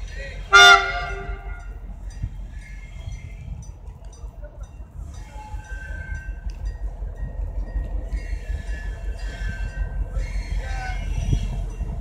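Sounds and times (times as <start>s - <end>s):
locomotive engine rumble: 0.0s - 12.0s
thin high-pitched train squeals: 0.6s - 4.2s, 4.9s - 12.0s.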